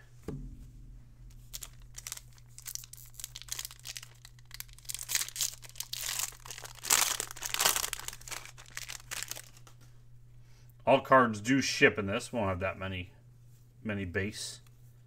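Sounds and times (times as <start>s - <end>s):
foil wrapper tearing and crinkling: 1.3s - 9.8s.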